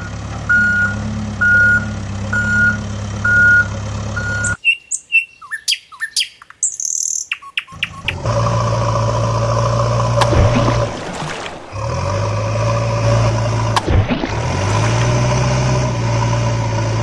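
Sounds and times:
engine hum: 0.0s - 4.6s, 7.6s - 17.0s
reversing beeps: 0.0s - 4.6s
birds chirping: 0.0s - 8.4s.

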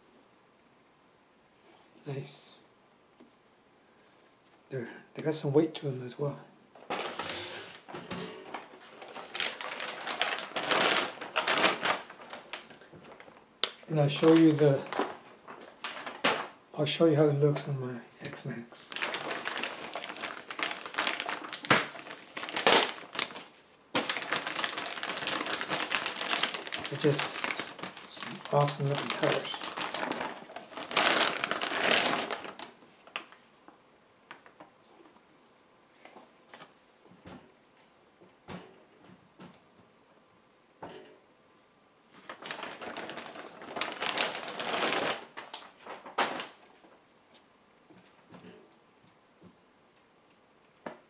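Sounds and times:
plastic bag crinkling: 6.8s - 16.6s, 18.5s - 33.5s, 42.2s - 46.9s.

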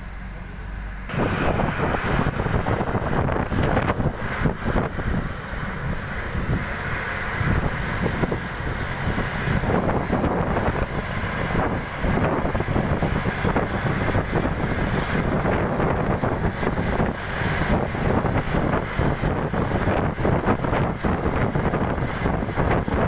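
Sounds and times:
bus engine and tyres rumble: 0.0s - 23.0s
wind buffeting microphone: 1.1s - 23.0s.

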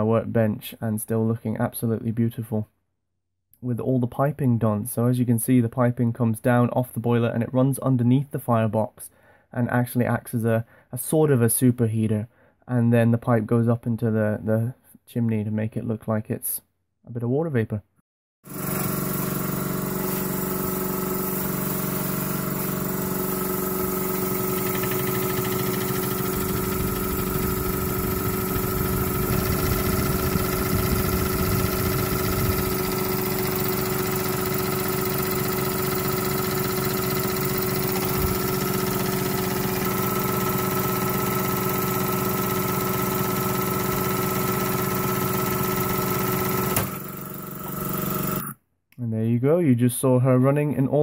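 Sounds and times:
compressor humming: 18.5s - 48.5s
model engine cylinder chuffing: 18.5s - 48.5s.

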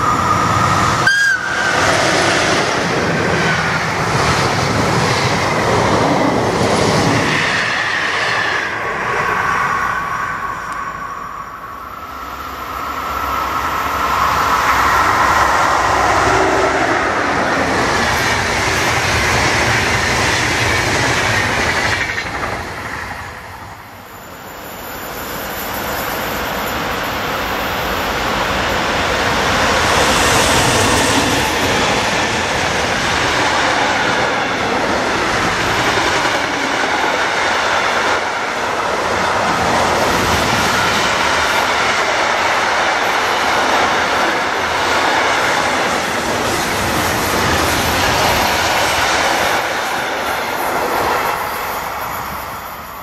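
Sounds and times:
high whine: 0.0s - 4.1s, 7.7s - 17.3s
trains passing at speed: 0.0s - 53.0s.

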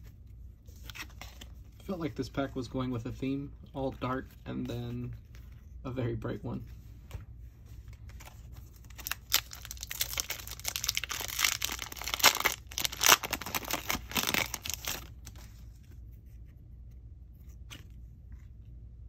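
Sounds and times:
foil wrapper tearing and crinkling: 8.8s - 15.2s.

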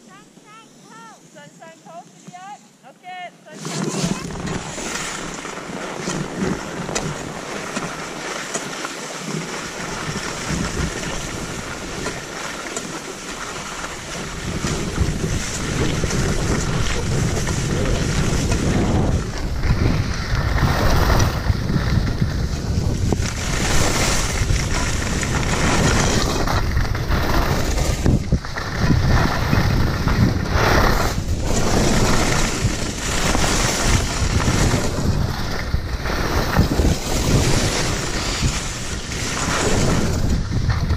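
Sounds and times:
skis hissing on snow: 3.6s - 40.4s
wind buffeting microphone: 9.8s - 12.4s, 13.8s - 40.9s.

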